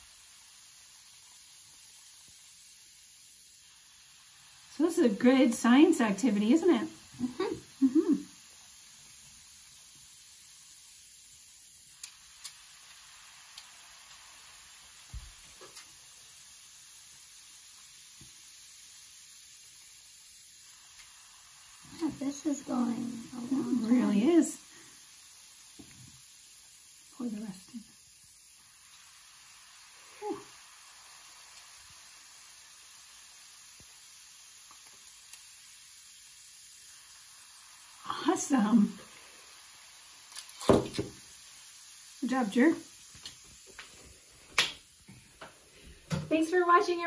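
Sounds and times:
fizzing foam reaction: 0.0s - 47.0s
vinegar pouring: 38.9s - 41.6s.

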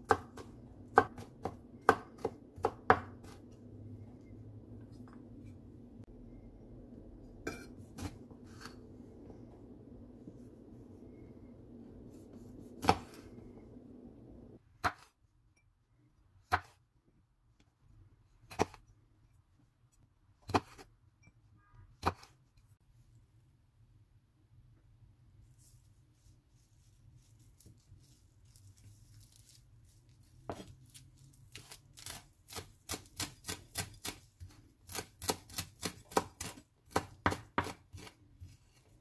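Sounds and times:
low background hum: 0.0s - 14.6s.

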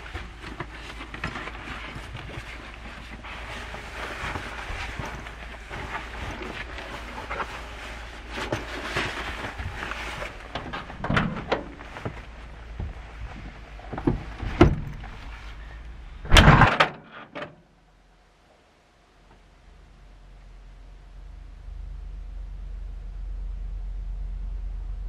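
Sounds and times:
backpack rustling and knocking: 0.0s - 15.4s.

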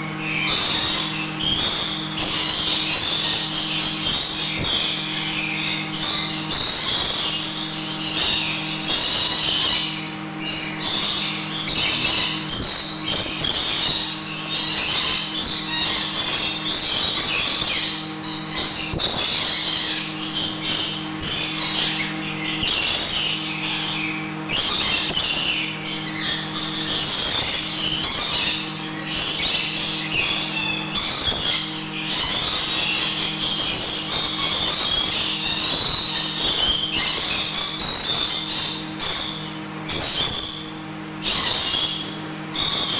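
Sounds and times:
lorikeets chattering and screeching: 0.0s - 42.9s
steady low hum: 0.0s - 42.9s.

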